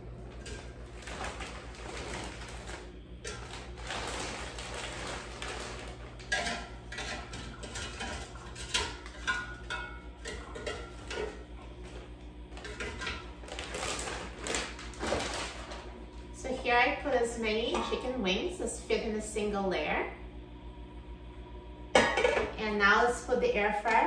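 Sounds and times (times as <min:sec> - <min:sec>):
frozen pieces knocking on metal basket: 0:00.3 - 0:15.9
plastic bag crinkling: 0:00.5 - 0:06.4, 0:11.8 - 0:16.0.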